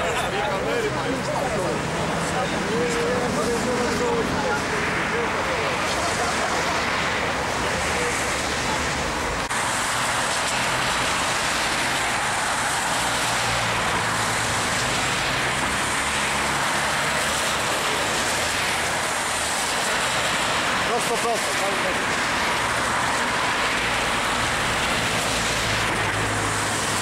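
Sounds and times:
traffic on wet street: 0.0s - 27.0s.

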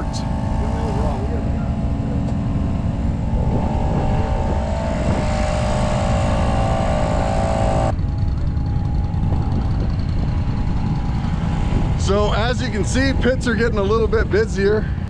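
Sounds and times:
high hum with hiss: 0.0s - 7.9s
small engine rumbling: 0.0s - 15.0s.

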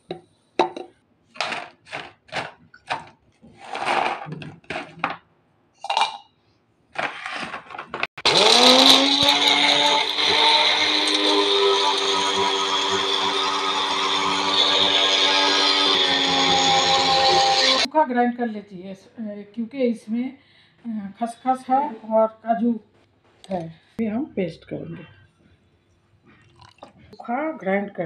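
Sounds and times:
blender motor whining: 8.2s - 17.9s.

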